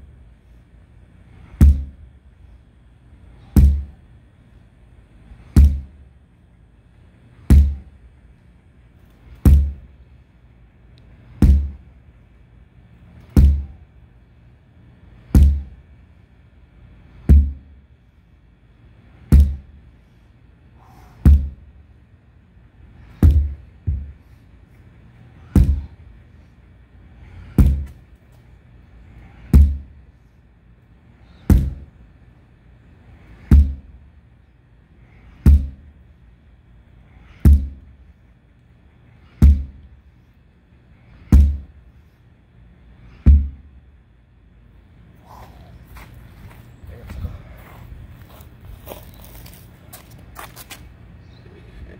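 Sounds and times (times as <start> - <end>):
sledgehammer thudding on tire: 1.6 - 2.0, 3.5 - 4.0, 5.5 - 5.9, 7.4 - 7.9, 9.4 - 9.8, 11.4 - 11.8, 13.3 - 13.8, 15.3 - 15.7, 17.2 - 17.7, 19.3 - 19.7, 21.1 - 21.6, 23.1 - 24.2, 25.4 - 26.0, 27.4 - 28.0, 29.4 - 29.9, 31.4 - 31.9, 33.4 - 33.9, 35.3 - 35.9, 37.3 - 37.8, 39.2 - 39.8, 41.2 - 41.7, 43.2 - 43.7.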